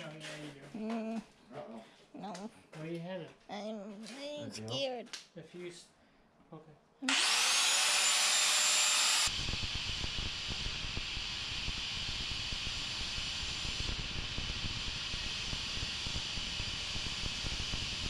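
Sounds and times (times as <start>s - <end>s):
grinder cutting metal chain: 7.1s - 9.4s
angle grinder whining: 7.1s - 18.0s.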